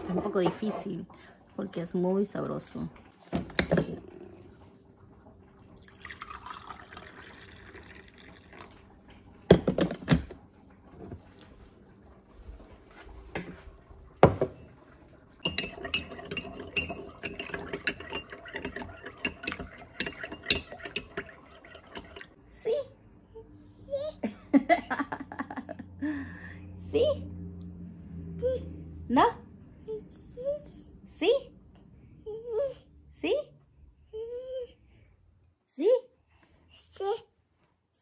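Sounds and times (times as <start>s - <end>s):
coffee pouring into mug: 3.4s - 22.4s
carafe and cup set down: 9.5s - 10.4s, 14.2s - 14.6s
spoon clinking in mug: 15.4s - 22.3s.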